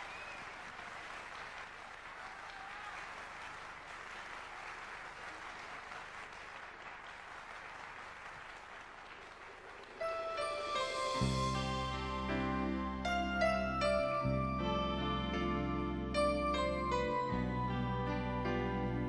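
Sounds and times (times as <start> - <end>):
audience applauding: 0.0 - 11.2.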